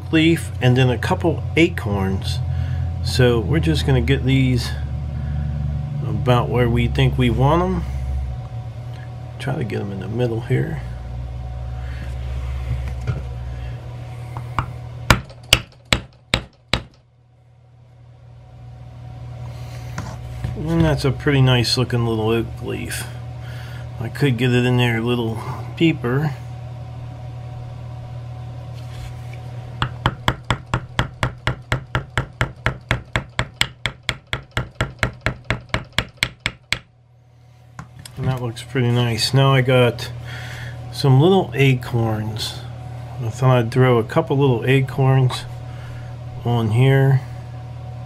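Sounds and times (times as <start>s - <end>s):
mallet striking metal stamp: 15.1s - 17.0s, 29.8s - 36.9s.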